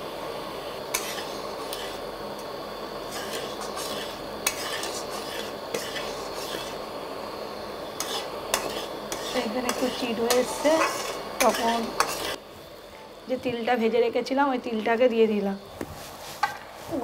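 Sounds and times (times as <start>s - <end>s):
syrup bubbling and sizzling: 0.0s - 12.9s
metal spatula scraping a wok: 0.9s - 2.0s, 3.1s - 6.9s, 7.9s - 12.4s.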